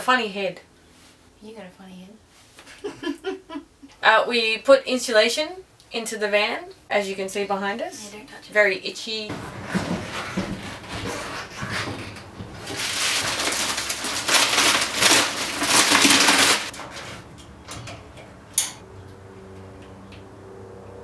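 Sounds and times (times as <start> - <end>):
plastic wrapping crinkling: 9.3 - 17.1.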